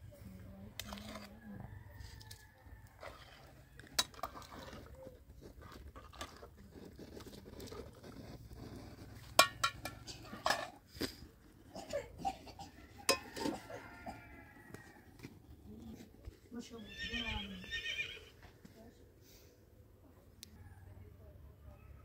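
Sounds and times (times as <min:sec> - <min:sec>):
metal ladle stirring in pot: 0:00.8 - 0:01.4, 0:02.8 - 0:10.8, 0:12.9 - 0:14.2
metal kitchenware clinking: 0:09.4 - 0:10.8.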